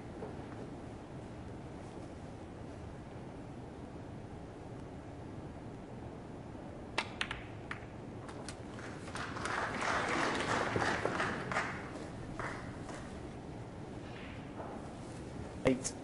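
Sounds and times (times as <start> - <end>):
snooker balls clicking: 7.0 - 9.1
audience applause: 8.3 - 13.2.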